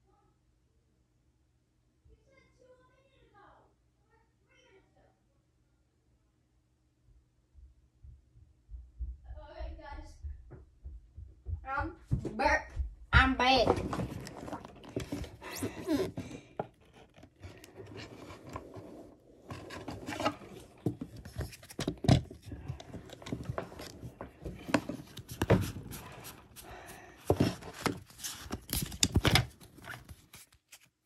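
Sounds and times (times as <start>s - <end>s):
cards and packaging rustling: 13.5s - 31.0s.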